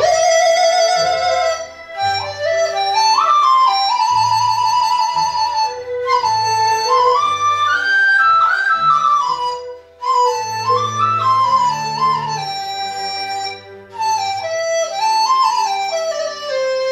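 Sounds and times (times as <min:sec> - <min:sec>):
bamboo flute folk melody: 0:00.0 - 0:16.9
low sustained accompaniment notes: 0:08.4 - 0:16.9.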